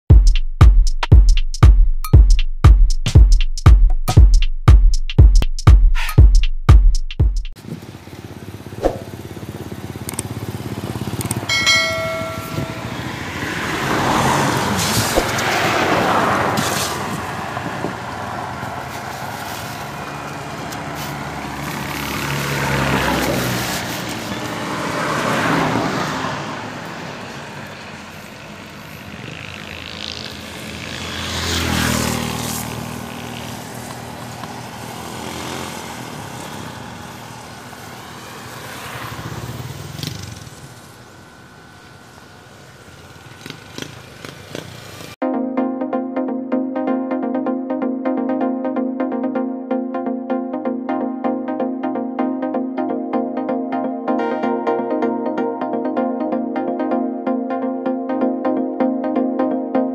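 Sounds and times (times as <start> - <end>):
vehicles passing: 7.5 - 45.2.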